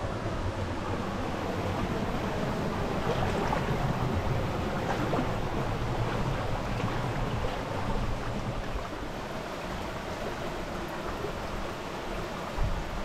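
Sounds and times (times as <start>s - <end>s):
wind on microphone: 11.2s - 13.0s.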